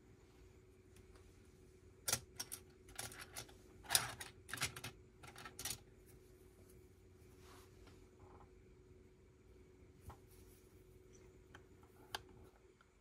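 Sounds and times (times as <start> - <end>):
plastic bricks clicking and rattling: 2.1 - 5.8.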